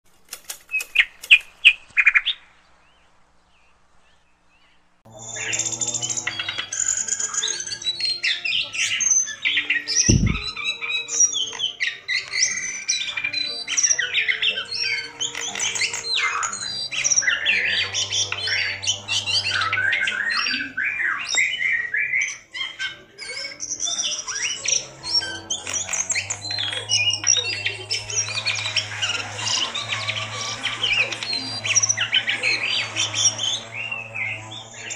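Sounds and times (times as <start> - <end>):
bird singing chirps and trills: 0.7 - 34.9
low thump: 10.1 - 10.5.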